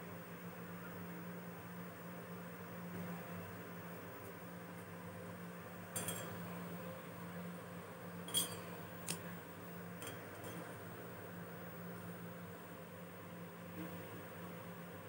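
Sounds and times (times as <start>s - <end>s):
steady low hum: 0.0s - 15.0s
paintbrush clinking against metal cup: 6.0s - 6.4s, 8.3s - 8.7s.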